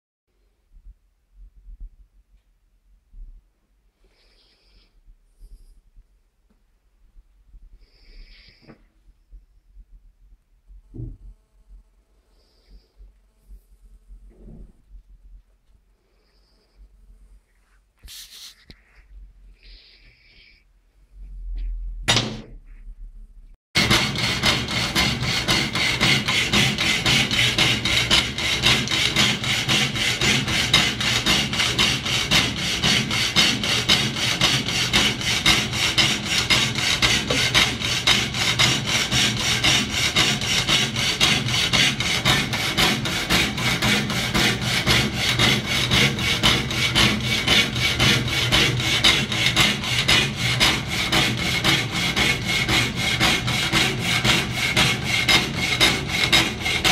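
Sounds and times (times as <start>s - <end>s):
power hacksaw rasping through steel: 23.8s - 56.9s.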